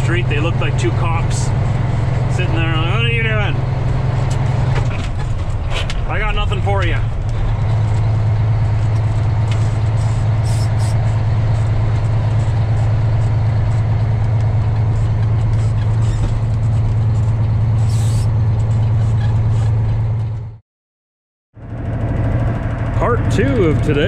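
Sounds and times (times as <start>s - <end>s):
truck diesel engine droning: 0.0s - 20.6s, 21.6s - 24.0s
short high hisses: 10.0s - 11.0s.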